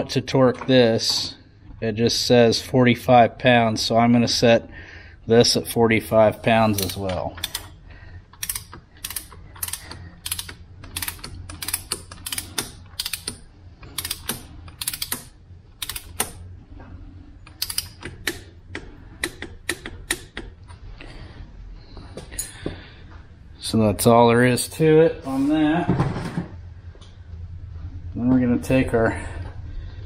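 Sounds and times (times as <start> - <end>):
ratcheting torque wrench clicking: 6.8 - 7.8, 8.4 - 16.4, 17.5 - 18.4.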